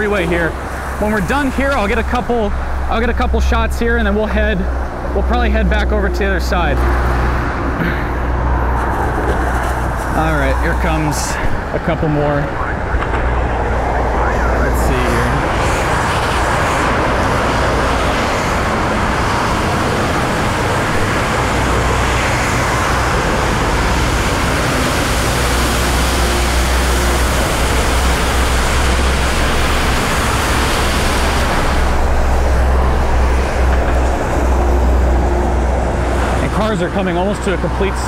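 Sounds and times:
low traffic rumble: 0.0s - 38.0s
tyres hissing through water: 14.6s - 36.4s.

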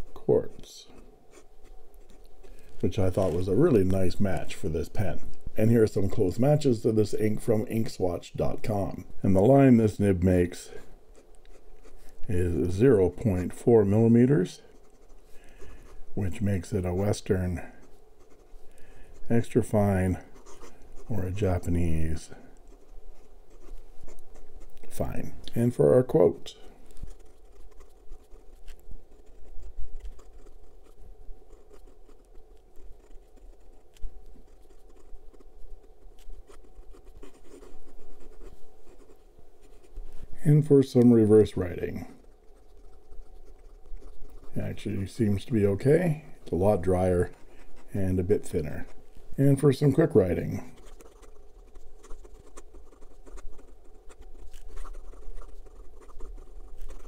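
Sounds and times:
fountain pen scratching on paper: 10.7s - 25.4s, 26.5s - 40.4s, 41.3s - 57.0s.

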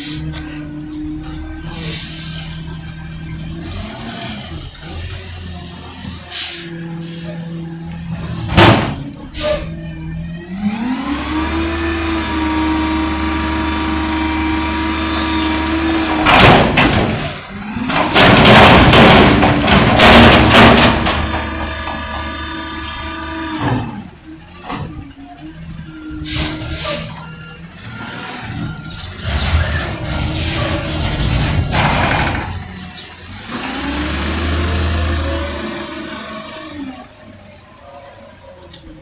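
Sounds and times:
hydraulics working: 0.0s - 39.0s
loud bangs and clattering: 8.4s - 9.1s, 16.0s - 22.6s, 28.5s - 32.8s.

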